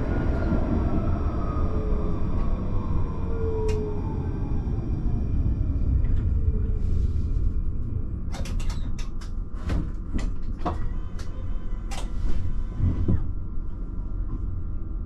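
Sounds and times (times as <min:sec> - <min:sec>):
tram rumble: 0:00.0 - 0:15.0
sharp irregular clicks and knocks: 0:08.3 - 0:09.4.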